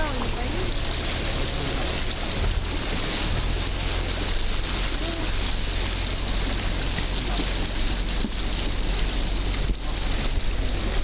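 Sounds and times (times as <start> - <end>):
low engine rumble: 0.0 - 11.0
water rushing and splashing: 0.0 - 11.0.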